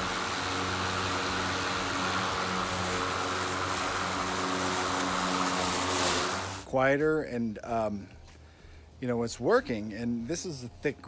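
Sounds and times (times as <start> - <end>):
electric lawn mower cutting grass: 0.0 - 6.7.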